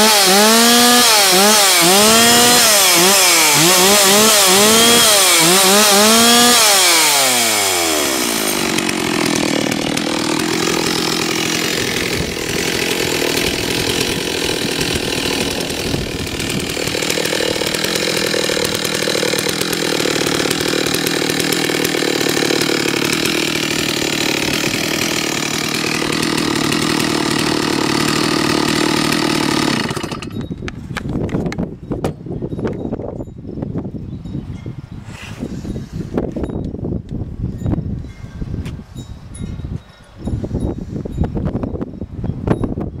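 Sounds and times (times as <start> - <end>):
chainsaw engine idling: 0.0 - 30.6.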